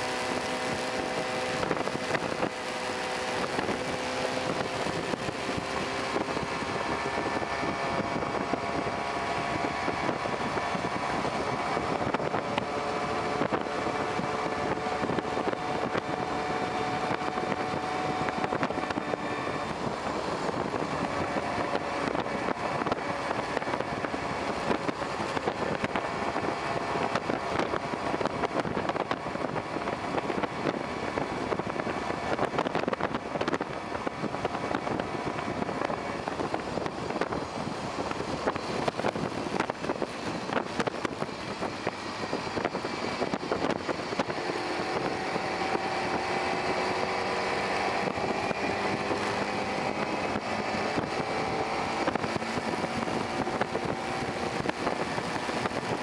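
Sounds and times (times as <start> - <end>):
wind and road noise: 0.0 - 56.0.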